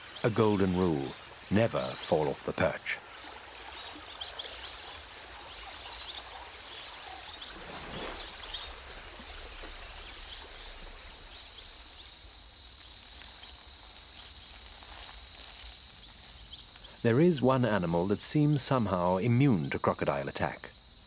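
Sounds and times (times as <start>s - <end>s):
splash in water: 3.3s - 11.9s
high-pitched insect trill: 3.6s - 21.0s.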